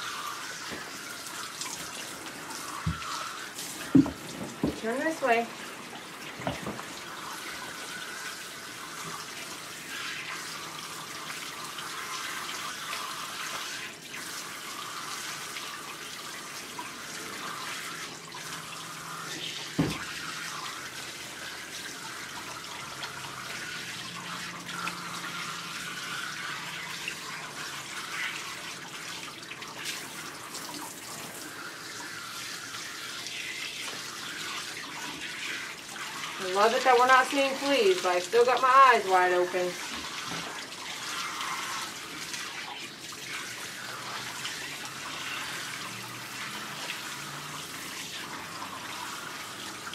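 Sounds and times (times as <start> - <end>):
water spraying from bath sprayer: 0.0 - 49.9.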